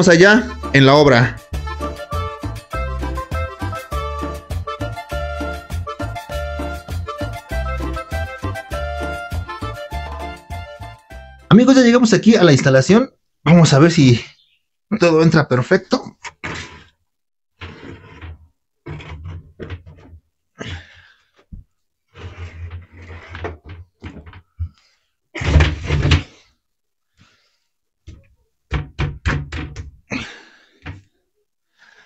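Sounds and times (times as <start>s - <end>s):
wooden frame thudding and sliding: 25.4s - 26.4s.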